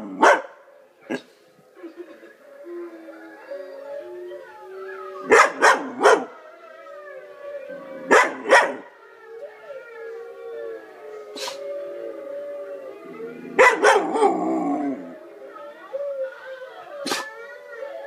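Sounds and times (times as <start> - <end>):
dog barking: 0.2 - 1.2, 5.3 - 6.3, 8.1 - 8.8, 13.6 - 14.3
wolves howling: 2.4 - 18.0.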